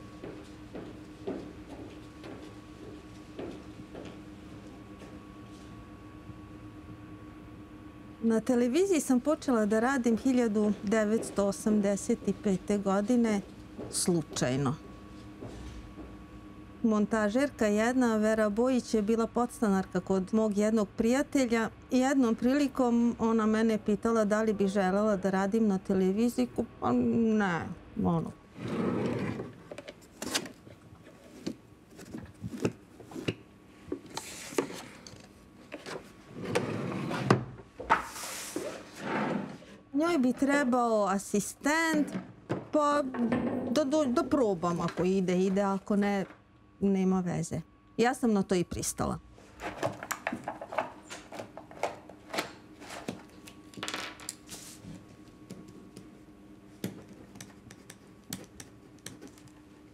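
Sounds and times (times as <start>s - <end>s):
faint steady hum: 0.0s - 59.9s
wooden drawer sliding: 36.3s - 37.4s, 38.6s - 39.6s.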